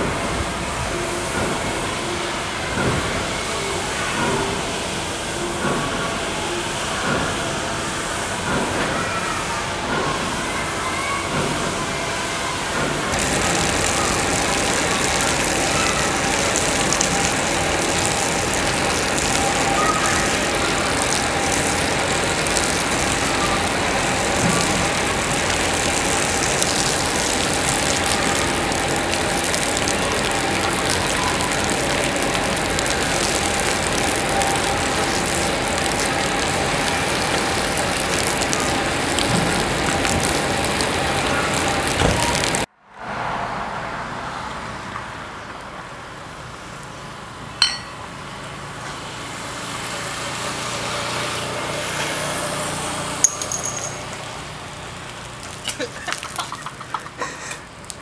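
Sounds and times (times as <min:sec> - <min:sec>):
faint mechanical hum: 0:00.0 - 0:42.7
water jet spraying concrete: 0:12.5 - 0:42.7, 0:49.2 - 0:58.0.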